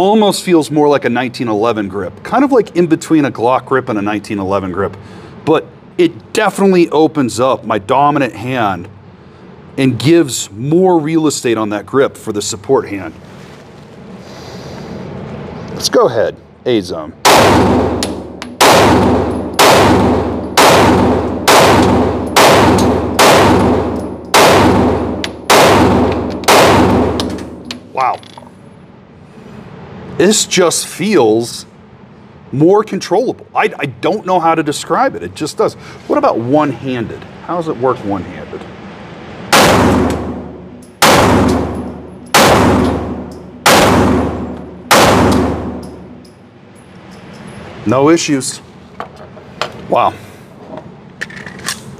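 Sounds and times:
pistol shots echoing indoors: 17.2s - 27.8s, 39.5s - 46.3s.

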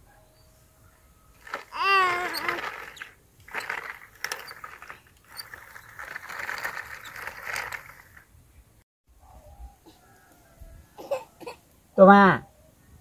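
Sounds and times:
plastic wheels rattling over gravel: 1.4s - 8.4s.

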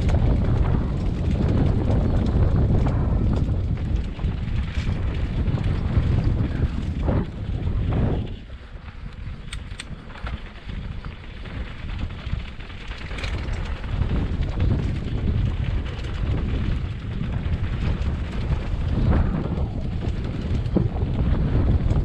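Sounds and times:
low rumble of riding: 0.0s - 22.0s
wind buffeting microphone: 0.0s - 22.0s
rattles and knocks: 9.4s - 22.0s.

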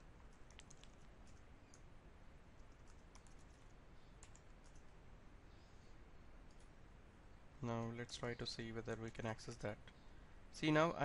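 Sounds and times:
keyboard typing clicks: 0.2s - 1.9s, 2.6s - 4.9s.

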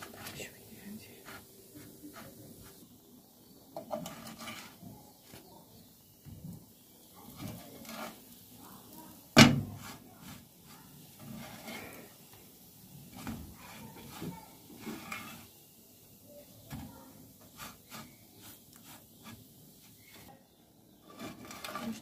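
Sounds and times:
spatula scraping frying pan: 0.0s - 0.5s, 1.1s - 2.9s, 3.7s - 5.5s, 7.0s - 15.6s, 16.6s - 20.3s, 20.9s - 22.0s.

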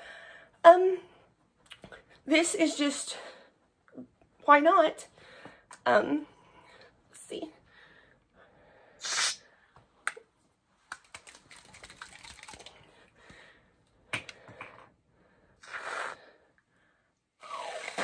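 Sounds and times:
aerosol can hissing squirts: 9.0s - 9.4s
can rattling as shaken: 10.9s - 12.8s.

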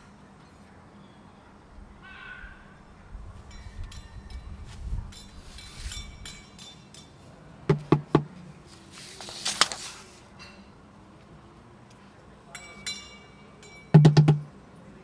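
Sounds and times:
toddler drumming on pan: 7.7s - 8.3s, 14.0s - 14.5s.

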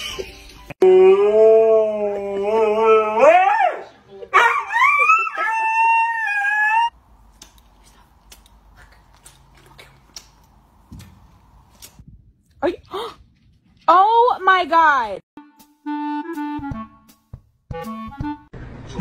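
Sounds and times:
husky howling: 0.8s - 6.9s.

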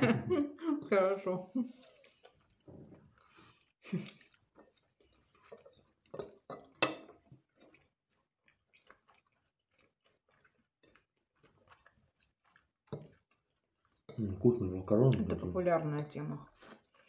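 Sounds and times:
chewing with wet smacks: 1.7s - 14.5s, 16.7s - 17.0s.

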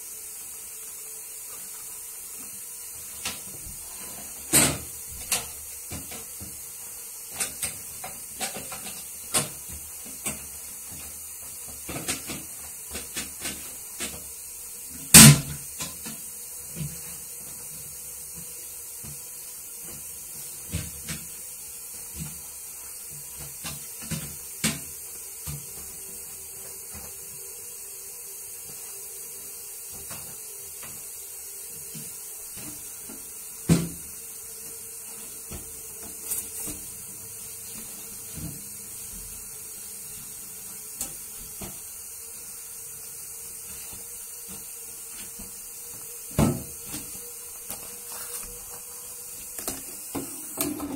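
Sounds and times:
knocks and rubbing cleaning toilet: 29.8s - 42.1s, 43.1s - 50.9s.

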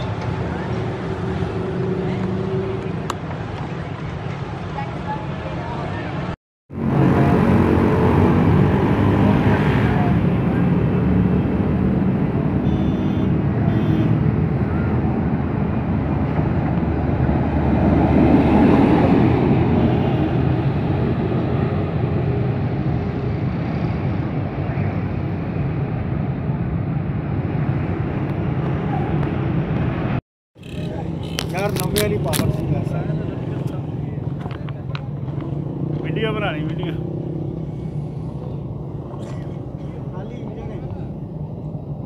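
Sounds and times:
diesel engine of passing rail vehicle: 13.4s - 42.0s.

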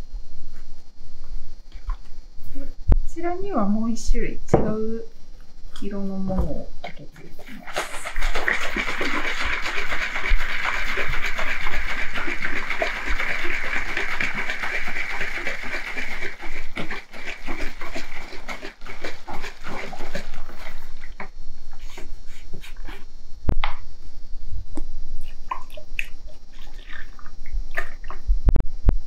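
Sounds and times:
liquid sloshing in bottle: 6.8s - 21.2s.

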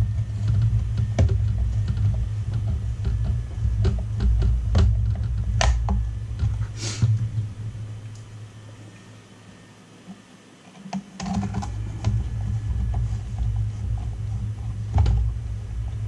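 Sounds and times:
steady low hum: 0.0s - 16.0s
short scrape: 6.6s - 7.2s.

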